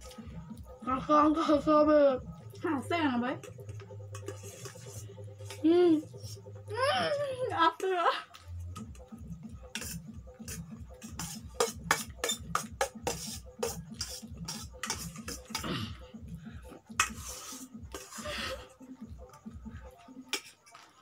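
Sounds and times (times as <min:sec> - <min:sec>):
cutlery clinking against steel bowls: 0:04.1 - 0:05.0, 0:11.0 - 0:15.7.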